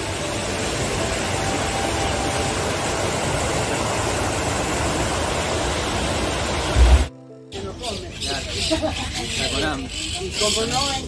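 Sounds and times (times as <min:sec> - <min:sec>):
white water rushing over boulders: 0:00.0 - 0:07.1.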